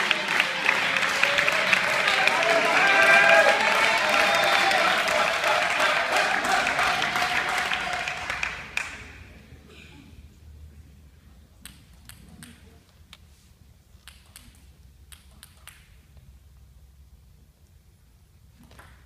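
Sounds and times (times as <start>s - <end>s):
applause: 0.0s - 9.3s.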